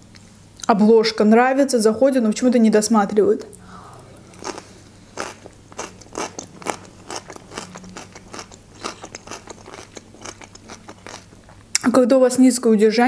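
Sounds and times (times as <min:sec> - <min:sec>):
chewing crisp cucumber: 0:04.1 - 0:11.8.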